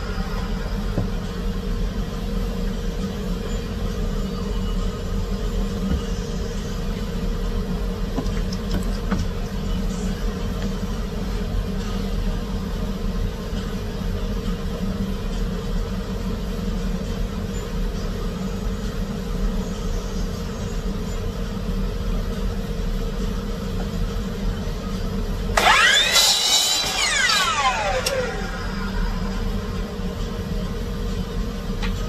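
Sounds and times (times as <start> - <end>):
steady low hum: 0.0 - 32.0
miter saw motor whine: 25.6 - 29.7.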